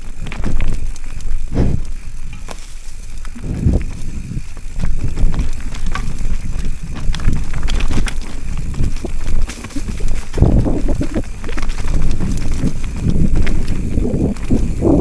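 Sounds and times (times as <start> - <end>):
wind rumble on microphone: 0.0 - 2.5, 3.1 - 15.0
mountain bike rattling over rocks: 0.0 - 15.0.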